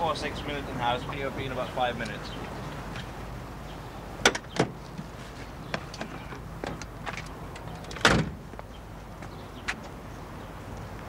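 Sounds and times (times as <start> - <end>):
car door slamming shut: 4.2 - 4.8, 8.0 - 8.4
car door latch clicks: 7.8 - 8.4.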